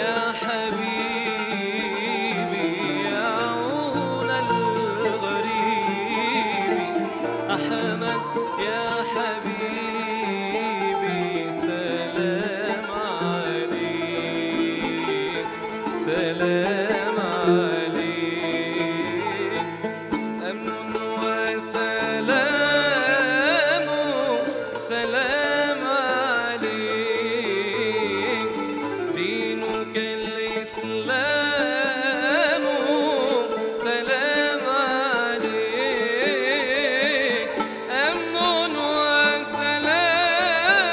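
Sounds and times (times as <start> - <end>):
ney flute: 0.0 - 21.2, 21.8 - 30.1
man singing: 0.0 - 40.9
plucked string instruments: 0.0 - 40.9.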